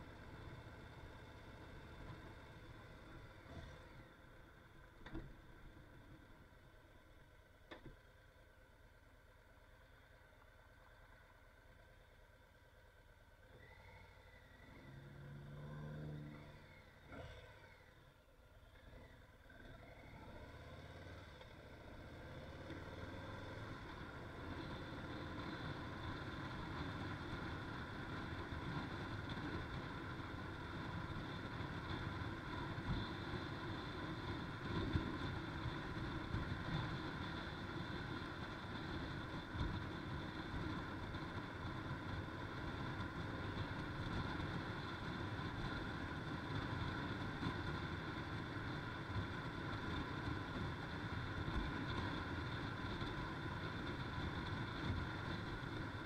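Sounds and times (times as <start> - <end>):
wind and road noise: 0.0 - 56.0
motorcycle engine running: 19.1 - 56.0.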